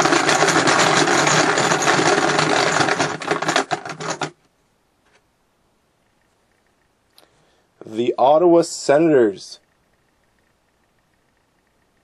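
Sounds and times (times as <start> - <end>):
small machine rattling: 0.0 - 4.4.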